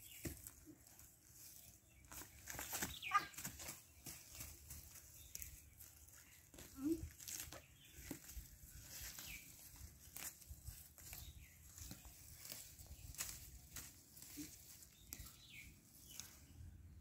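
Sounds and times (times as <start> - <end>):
faint high chirping calls: 0.0 - 10.2, 14.2 - 16.6.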